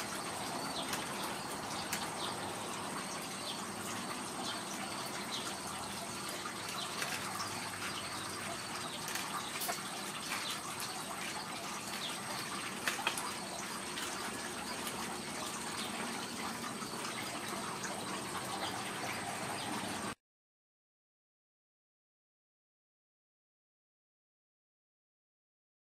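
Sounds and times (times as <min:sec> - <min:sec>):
plastic toy clicks and rattles: 0:06.2 - 0:15.0.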